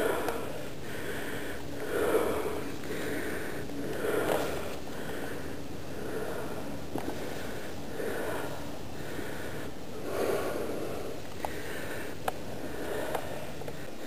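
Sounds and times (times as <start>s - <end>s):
person breathing hard: 0.0s - 14.0s.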